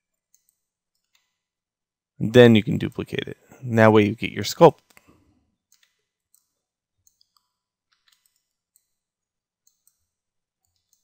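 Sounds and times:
mouse and keyboard clicks: 5.7s - 9.0s, 9.6s - 11.0s.

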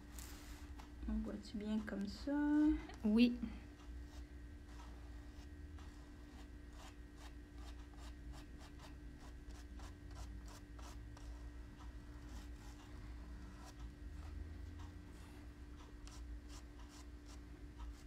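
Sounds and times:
paintbrush scratching on burlap: 4.0s - 11.5s, 12.2s - 14.4s, 16.0s - 18.0s.

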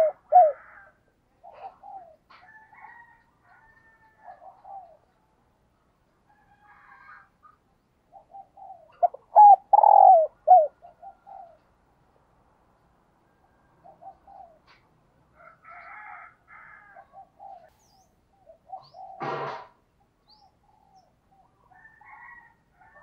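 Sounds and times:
dove cooing: 0.0s - 3.0s, 4.2s - 5.2s, 8.1s - 11.7s, 13.8s - 14.8s, 15.6s - 19.7s.

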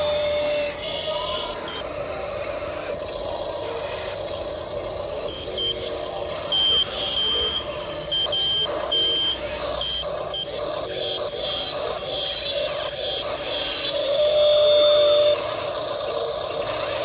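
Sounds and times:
toy electric motors whining: 0.0s - 17.0s
high electronic beeps: 4.9s - 15.7s.

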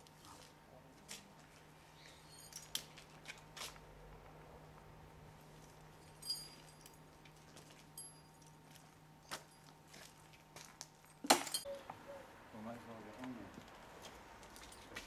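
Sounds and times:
harness fittings jingling: 2.2s - 3.0s, 6.0s - 8.7s.

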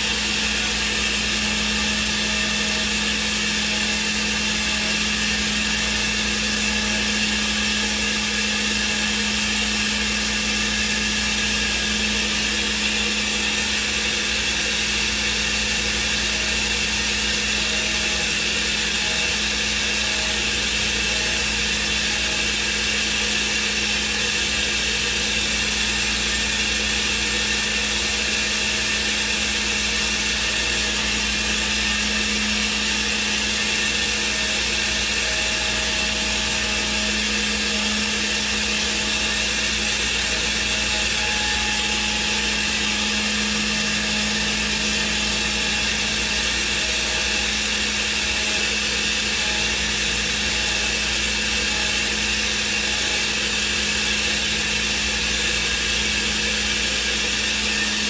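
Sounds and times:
cnc router whining: 0.0s - 58.0s.

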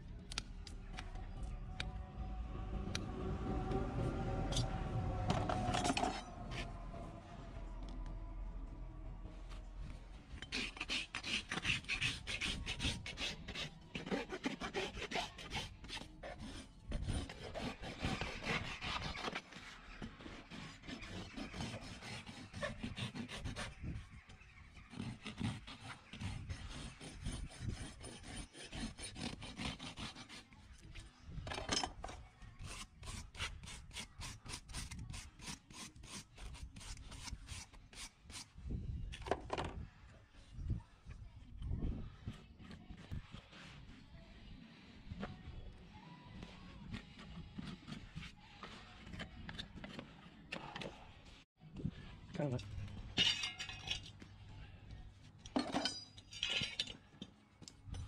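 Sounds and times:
rasp filing a hoof: 10.4s - 24.1s, 24.8s - 30.8s, 32.6s - 38.5s.

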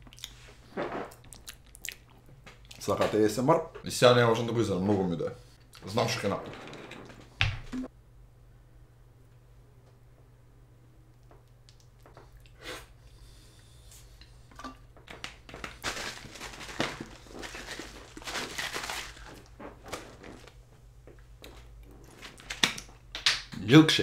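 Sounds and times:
plastic bottle crinkling and knocking: 14.5s - 20.6s.

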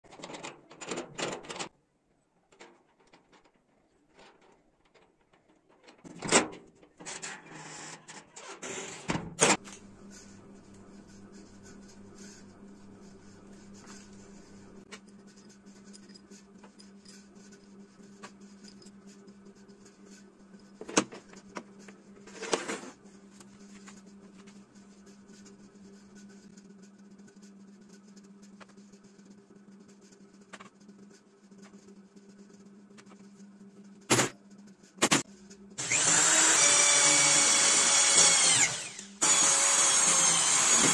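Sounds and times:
steady low hum: 9.5s - 35.9s.

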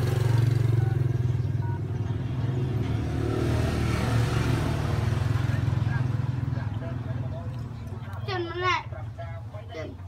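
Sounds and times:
engine idling hum: 0.0s - 3.1s.

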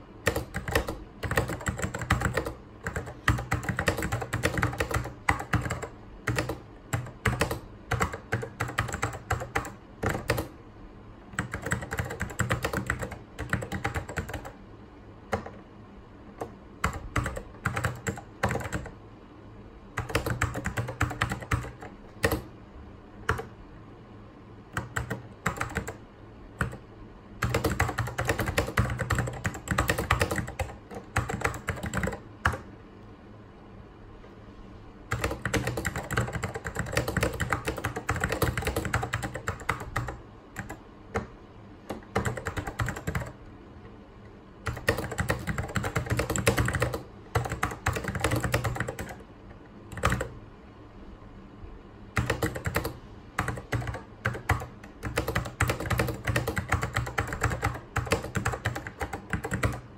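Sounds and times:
steady low hum: 0.0s - 59.9s
mechanical keyboard typing: 0.2s - 10.6s, 11.3s - 14.6s, 15.3s - 15.6s, 16.4s - 19.0s, 20.0s - 22.5s, 23.2s - 23.5s, 24.7s - 26.0s, 26.6s - 26.8s, 27.4s - 32.7s, 35.1s - 43.4s, 44.6s - 49.3s, 49.9s - 50.4s, 52.2s - 59.9s.

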